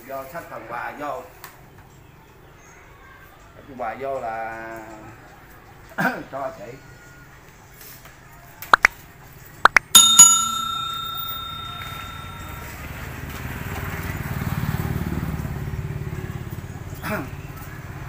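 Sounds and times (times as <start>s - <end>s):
ringing bell-like strikes: 9.8s - 13.2s.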